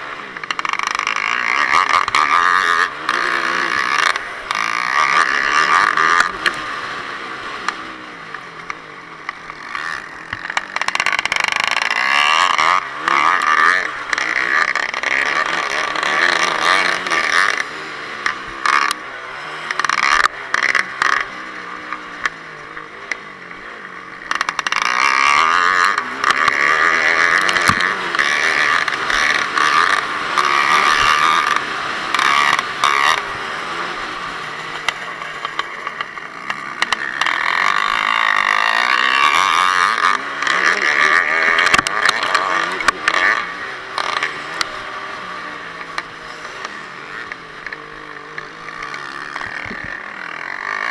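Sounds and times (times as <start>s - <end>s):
motorcycle engine revving: 0.0s - 50.9s.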